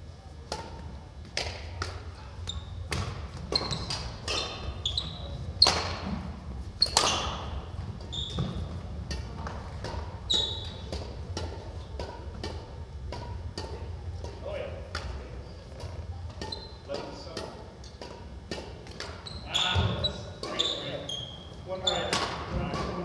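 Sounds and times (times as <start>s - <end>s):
steady low hum: 0.0s - 19.2s
rackets striking shuttlecock: 0.5s - 6.2s, 6.8s - 19.2s, 20.3s - 23.0s
shoes squeaking on wooden floor: 2.4s - 11.0s, 16.4s - 17.1s, 19.0s - 22.2s.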